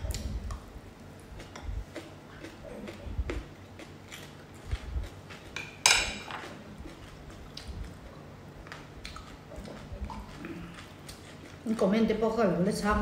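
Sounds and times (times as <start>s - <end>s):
person chewing: 0.0s - 11.8s
fork clicking on dishes: 5.5s - 7.0s.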